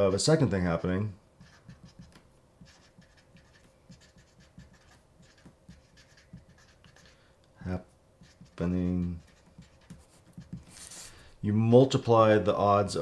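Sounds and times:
marker scratching on paper: 0:00.8 - 0:07.2, 0:08.2 - 0:11.2.

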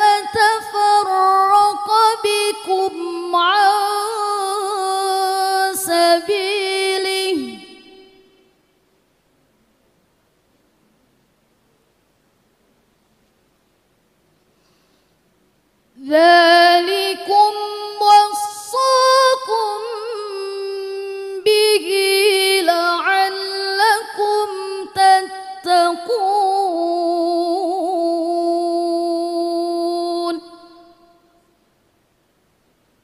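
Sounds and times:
woman reciting melodically: 0:00.0 - 0:08.5, 0:16.0 - 0:31.4.

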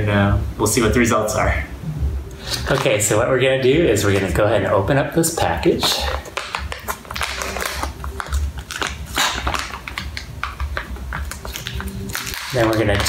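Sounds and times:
plastic pouch crinkling and tearing: 0:05.8 - 0:13.0.

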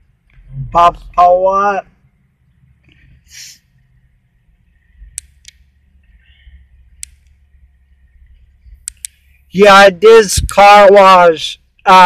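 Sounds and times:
car engine idling hum: 0:00.0 - 0:12.0
short hiss: 0:03.3 - 0:03.7
sharp clicks: 0:05.1 - 0:05.7, 0:07.0 - 0:07.4, 0:08.8 - 0:09.2.

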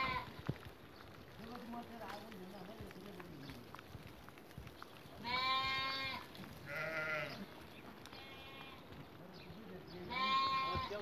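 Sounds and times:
sheep bleating: 0:00.0 - 0:00.4, 0:05.2 - 0:08.9, 0:10.0 - 0:11.0.

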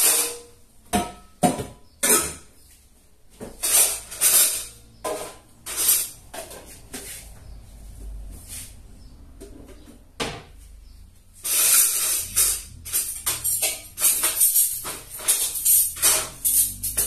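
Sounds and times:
dishes and pots clattering: 0:00.0 - 0:02.6, 0:11.5 - 0:17.0.

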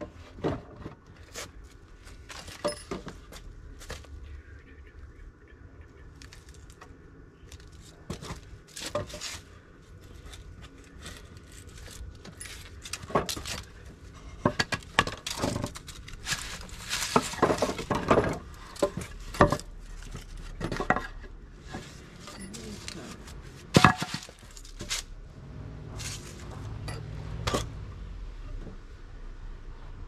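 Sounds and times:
metal tools clinking: 0:02.4 - 0:03.2, 0:10.2 - 0:21.1, 0:22.1 - 0:25.0, 0:26.0 - 0:27.7.

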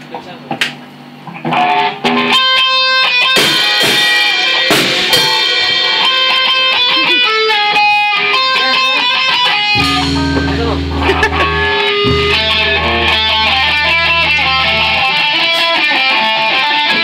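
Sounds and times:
electric guitars: 0:01.2 - 0:17.0
drum kit: 0:03.3 - 0:07.1, 0:09.5 - 0:16.5.

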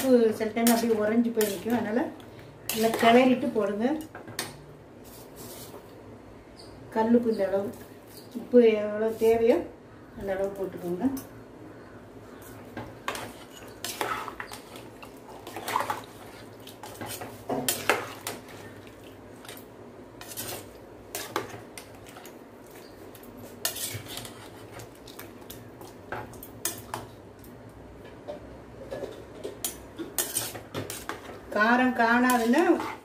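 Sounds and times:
metal ladle stirring in pan: 0:12.8 - 0:19.6, 0:20.2 - 0:25.3, 0:29.0 - 0:33.0.

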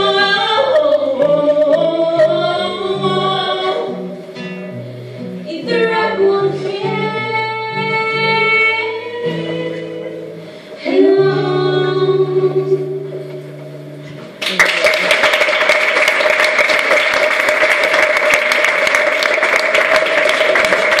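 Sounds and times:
person singing: 0:00.0 - 0:04.2, 0:05.4 - 0:13.5
acoustic guitar: 0:00.0 - 0:21.0
audience applause: 0:14.4 - 0:21.0.

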